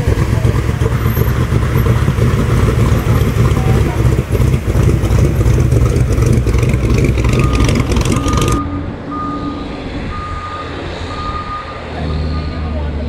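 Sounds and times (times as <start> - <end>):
vehicle engine idling: 0.0 - 13.0
reversing beeper: 7.2 - 12.9.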